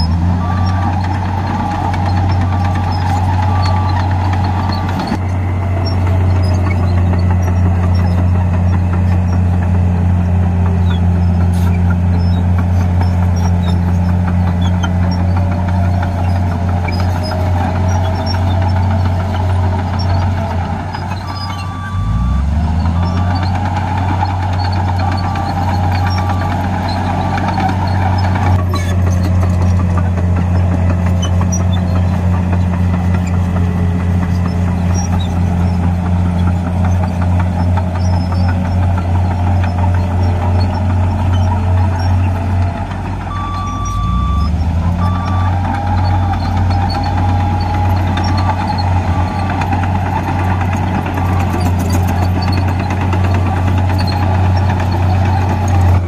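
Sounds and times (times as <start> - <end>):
reversing alarm beeping: 0.0 - 12.4, 14.8 - 28.9, 37.7 - 56.0
bulldozer diesel engine droning: 0.0 - 56.0.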